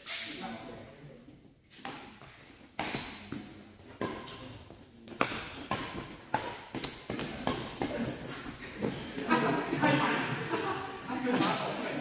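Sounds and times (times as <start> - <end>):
rackets hitting shuttlecock: 1.7 - 9.2.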